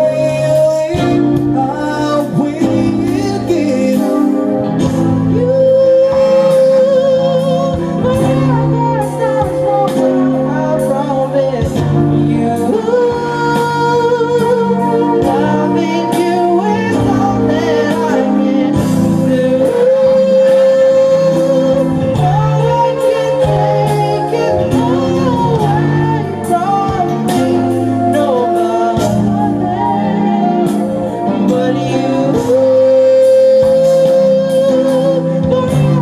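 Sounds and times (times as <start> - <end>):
keyboard chords: 0.0 - 36.0
man singing ballad: 0.0 - 36.0
saxophone melody: 0.0 - 36.0.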